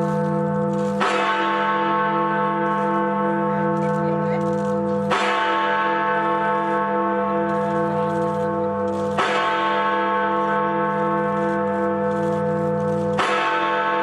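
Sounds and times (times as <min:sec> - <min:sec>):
large bell striking: 0:00.0 - 0:14.0
wavering hum under bell: 0:00.0 - 0:14.0.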